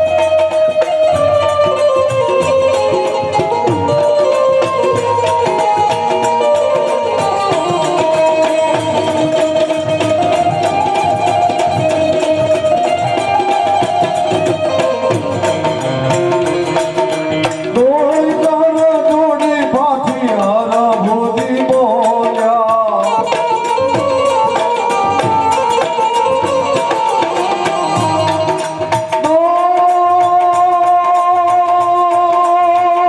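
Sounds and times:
harmonium melody: 0:00.0 - 0:33.0
tabla beat: 0:00.0 - 0:33.0
man singing: 0:17.7 - 0:33.0.

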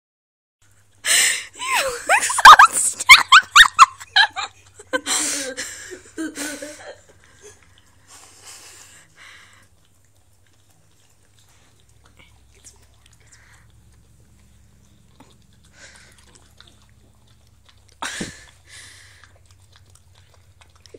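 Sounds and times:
dog breathy sounds: 0:05.1 - 0:20.9.

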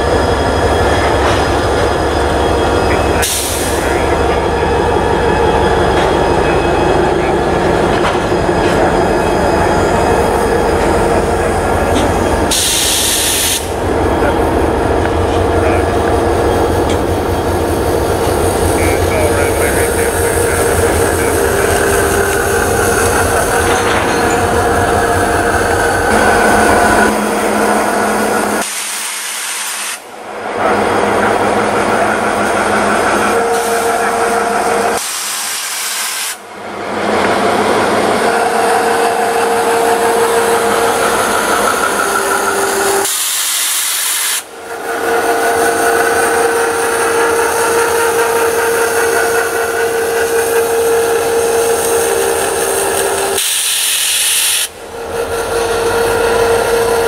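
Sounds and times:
diesel locomotive engine hum: 0:00.0 - 0:57.0
broad rushing noise: 0:00.6 - 0:43.1.

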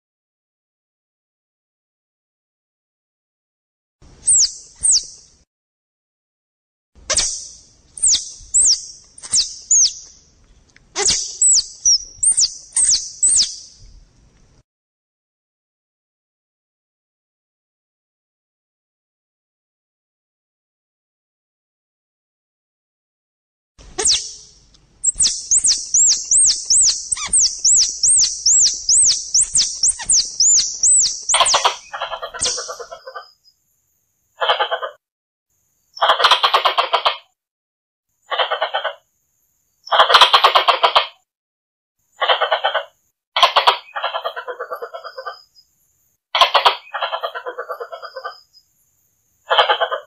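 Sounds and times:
squirrel chirping: 0:04.2 - 0:05.2, 0:07.1 - 0:10.2, 0:11.0 - 0:13.8, 0:24.0 - 0:33.3
squirrel chatter: 0:11.0 - 0:13.5, 0:24.0 - 0:24.4, 0:25.0 - 0:33.2, 0:39.9 - 0:41.1, 0:42.2 - 0:45.4, 0:46.4 - 0:48.4.

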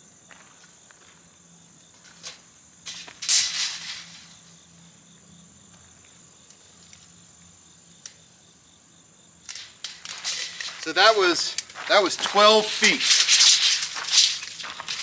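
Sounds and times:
loud scraping rustle: 0:02.0 - 0:04.5, 0:09.5 - 0:15.0
high-pitched insect drone: 0:09.4 - 0:15.0.

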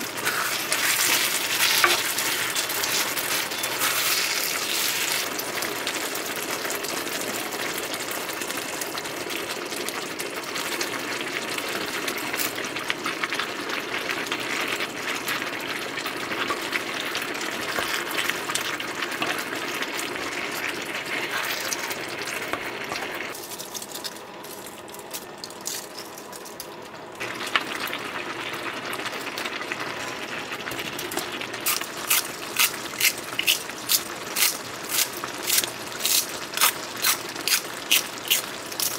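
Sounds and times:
wooden spoon stirring: 0:00.0 - 0:05.4
food sizzling and bubbling in a pan: 0:00.0 - 0:38.9.

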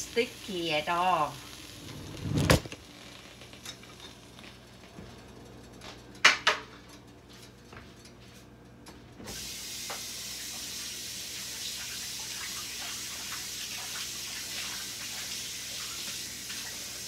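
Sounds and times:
kitchen tap running water: 0:09.3 - 0:17.0.

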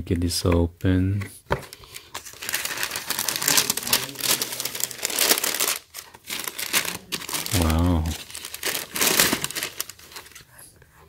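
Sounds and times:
tissue paper crinkling: 0:01.8 - 0:10.4.

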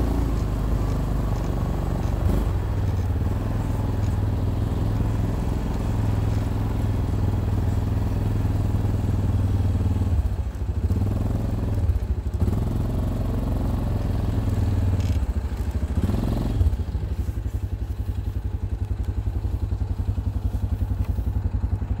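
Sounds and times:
atv engine rumbling: 0:00.0 - 0:22.0.

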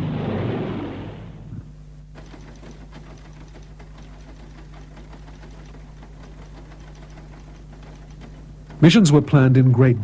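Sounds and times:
machine humming: 0:01.4 - 0:10.0
rapid even clicking: 0:02.1 - 0:09.6.

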